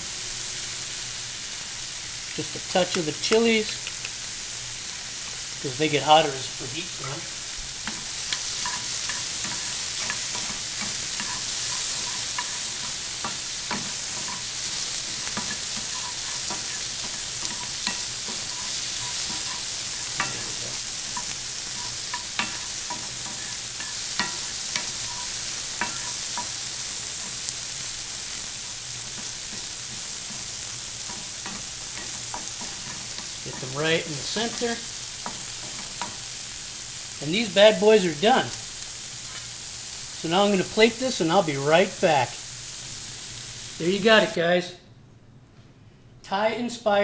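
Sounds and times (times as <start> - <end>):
shrimp sizzling in skillet: 0.0 - 44.4
wooden spatula clicks and scrapes: 7.8 - 26.5.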